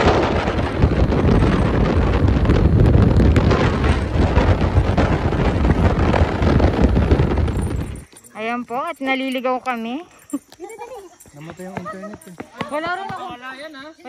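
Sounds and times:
wind buffeting microphone: 0:00.0 - 0:08.2.

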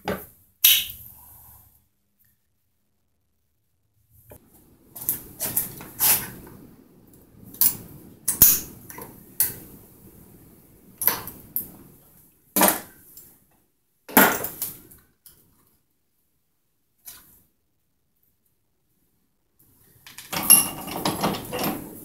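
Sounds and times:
metal engine parts clanking: 0:20.3 - 0:22.0.

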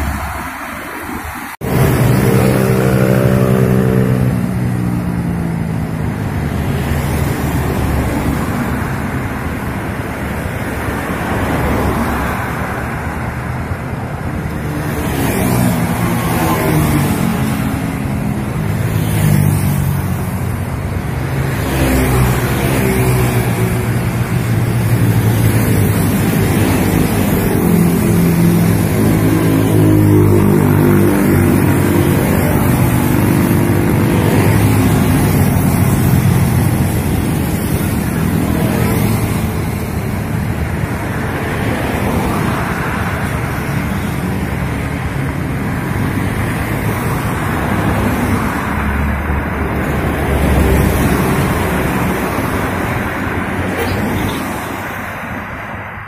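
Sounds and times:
cars and motorcycles driving past: 0:00.0 - 0:56.0.

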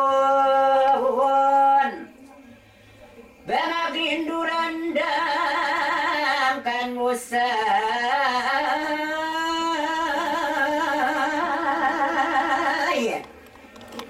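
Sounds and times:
person singing with vibrato: 0:00.0 - 0:02.2, 0:03.5 - 0:13.2.

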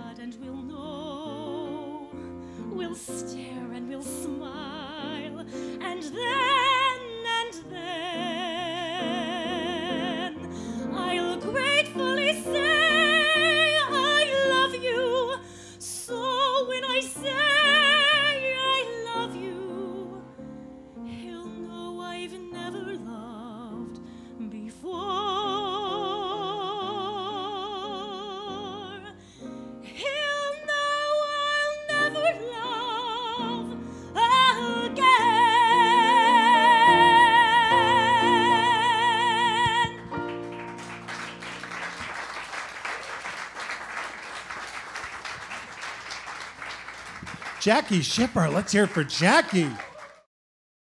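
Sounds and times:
piano accompaniment: 0:00.0 - 0:24.1, 0:25.0 - 0:42.6
soprano singing a ballad: 0:00.0 - 0:40.6
singer breaths: 0:15.4 - 0:15.8, 0:29.2 - 0:29.8.

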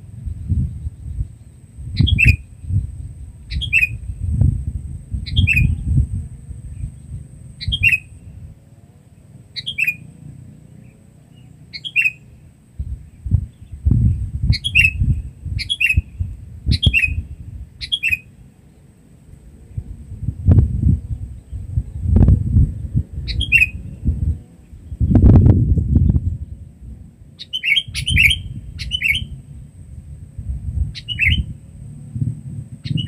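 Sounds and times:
low rumbling noise: 0:00.0 - 0:33.0
bird giving down-slurred calls: 0:11.4 - 0:12.3.

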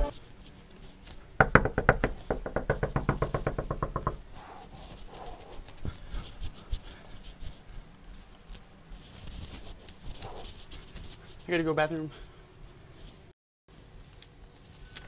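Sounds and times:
rapid knocking on door: 0:01.4 - 0:04.3.

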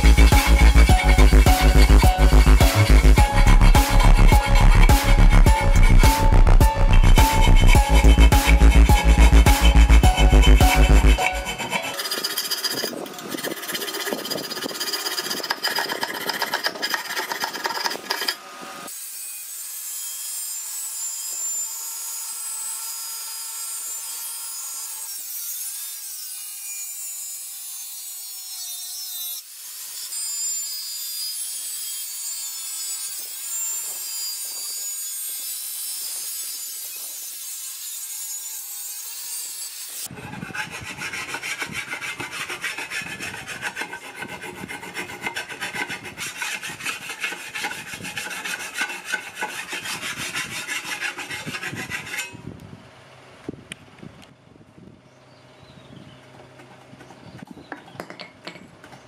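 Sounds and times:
hand file rasping on steel: 0:00.0 - 0:18.5, 0:37.8 - 0:52.4
angle grinder cutting steel: 0:00.0 - 0:52.4.

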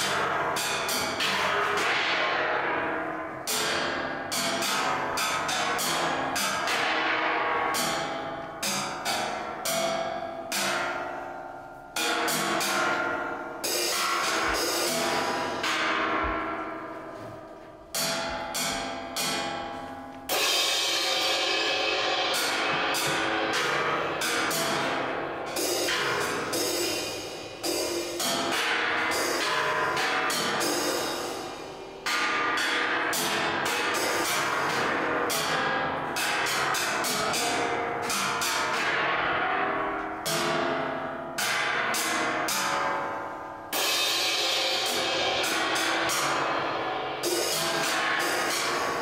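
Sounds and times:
cymbals and gongs ringing: 0:00.0 - 0:49.0.

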